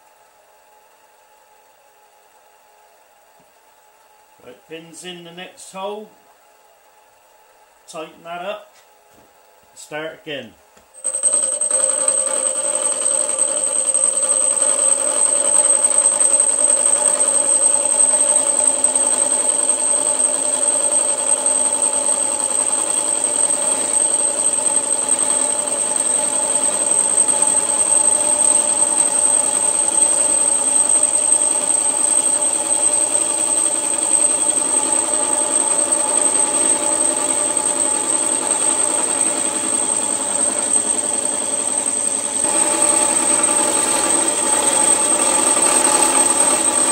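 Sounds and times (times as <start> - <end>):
milling machine motor whine: 11.0 - 46.9.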